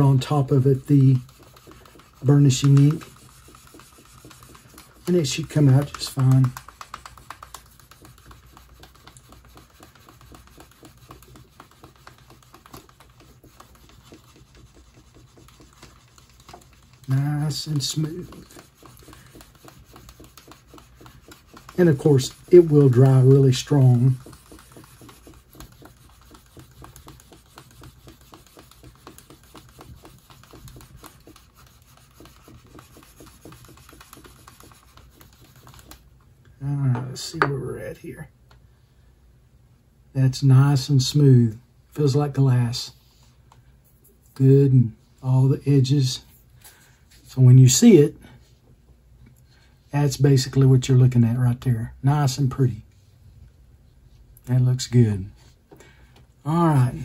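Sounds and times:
burnisher scraping leather edge: 0.0 - 36.0.

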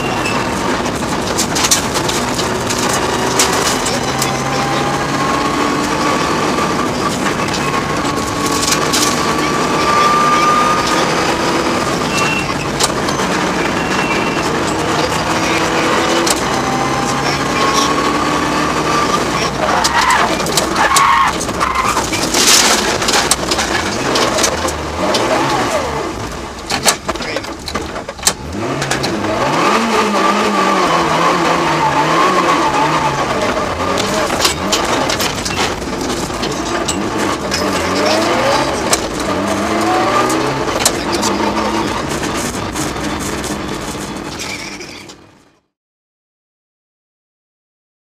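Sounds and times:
turbocharged car engine accelerating: 0.0 - 45.3
sharp clicks and knocks: 0.3 - 4.5, 12.1 - 13.4, 19.8 - 25.6, 26.2 - 29.2, 33.4 - 45.2.

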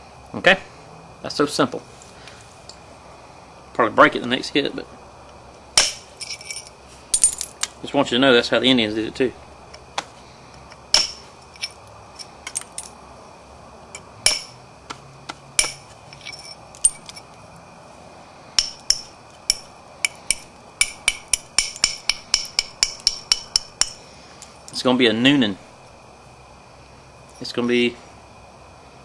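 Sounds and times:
knapping tool striking stone: 5.8 - 6.1, 10.9 - 11.3, 14.2 - 15.9, 18.6 - 24.0.

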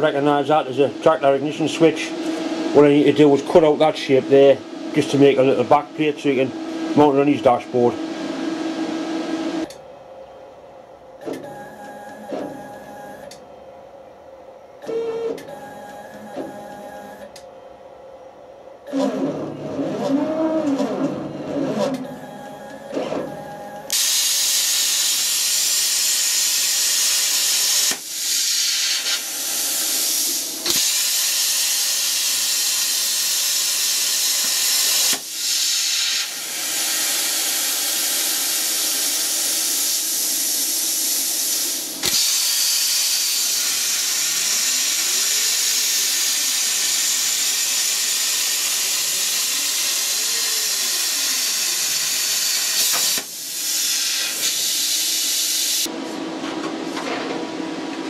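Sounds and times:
plasma cutter hissing: 23.9 - 55.9.

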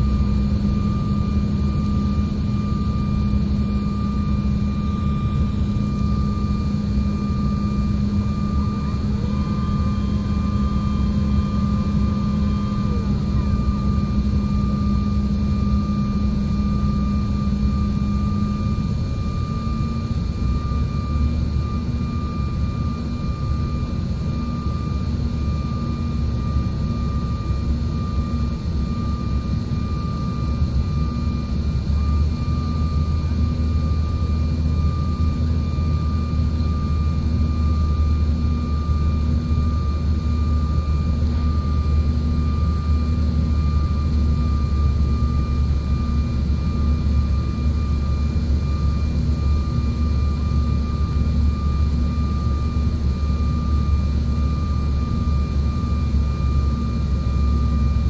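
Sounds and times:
high whine: 0.0 - 28.6
jet engine drone: 0.0 - 58.0.

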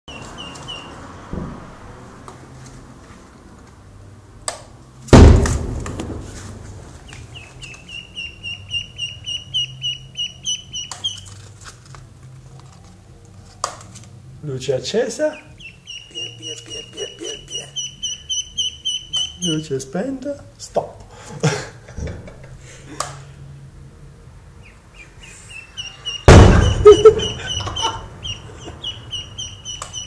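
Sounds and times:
duckling peeping: 0.1 - 1.0, 7.0 - 11.4, 15.2 - 19.9, 24.6 - 30.0
loud thump: 1.3 - 1.9, 5.1 - 6.6, 26.3 - 27.0.

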